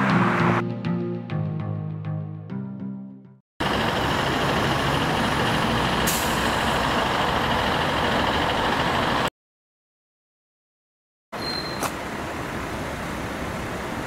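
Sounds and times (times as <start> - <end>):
road traffic: 0.0 - 1.0, 3.6 - 9.3, 11.4 - 14.0.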